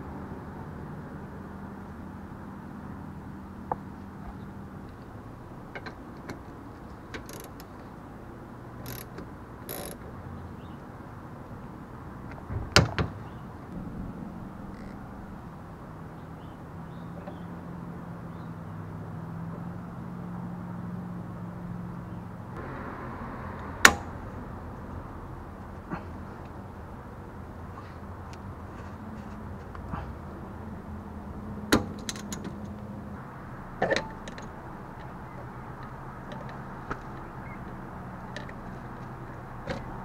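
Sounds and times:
steady low hum: 0:13.2 - 0:17.1.

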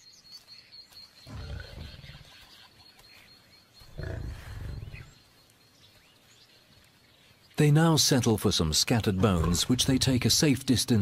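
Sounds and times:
lion growling: 0:01.2 - 0:02.4, 0:03.8 - 0:05.2, 0:09.2 - 0:10.1.

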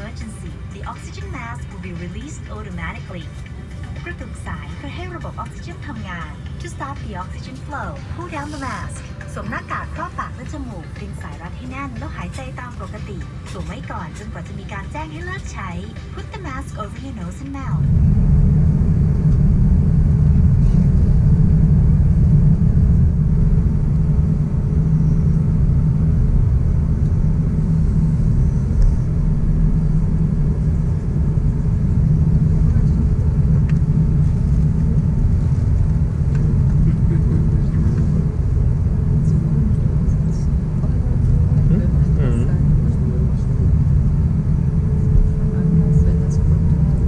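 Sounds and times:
airplane cabin rumble while taxiing: 0:00.0 - 0:47.0.

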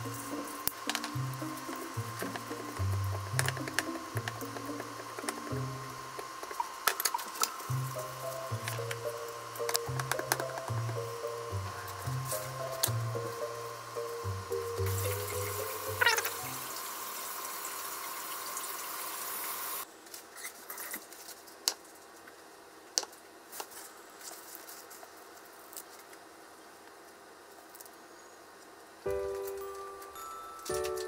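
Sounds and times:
steady hiss: 0:00.0 - 0:19.9.

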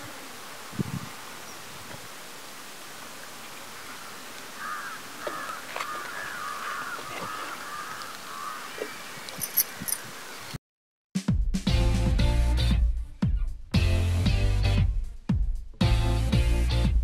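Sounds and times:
crows cawing: 0:03.9 - 0:10.5.

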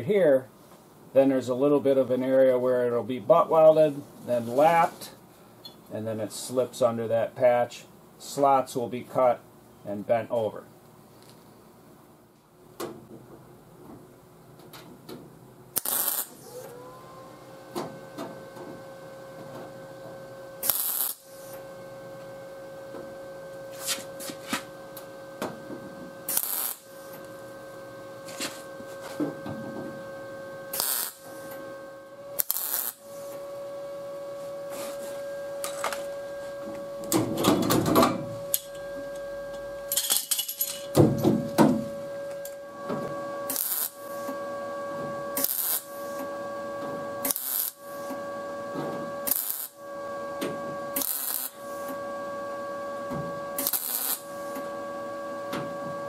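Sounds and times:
welding arc crackling: 0:15.7 - 0:16.4, 0:20.6 - 0:21.6, 0:26.2 - 0:27.4, 0:30.7 - 0:31.6, 0:32.4 - 0:33.3, 0:43.4 - 0:44.3, 0:45.4 - 0:46.2, 0:47.2 - 0:48.1, 0:49.2 - 0:49.8, 0:50.9 - 0:52.0, 0:53.6 - 0:54.6
welder hum: 0:15.7 - 0:56.0.

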